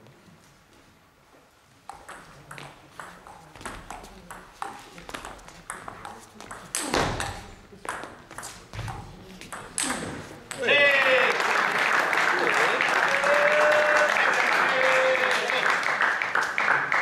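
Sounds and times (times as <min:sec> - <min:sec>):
table tennis ball clicking: 0:01.9 - 0:10.6.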